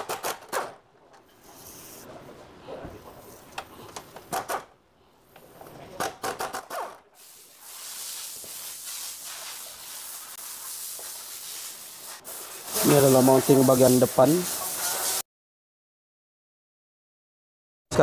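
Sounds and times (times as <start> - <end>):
steady hiss: 7.1 - 15.2.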